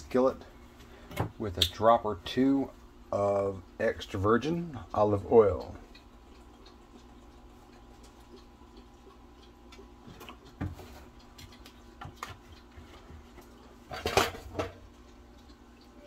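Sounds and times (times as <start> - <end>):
kitchenware clatter: 13.9 - 14.8
kitchenware clinking and knocking: 13.9 - 14.8.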